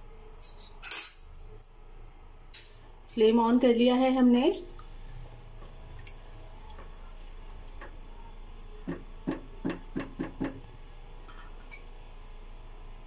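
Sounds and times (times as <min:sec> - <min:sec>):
steady low hum: 0:01.2 - 0:13.0
spatula knocking on pot: 0:08.8 - 0:10.6.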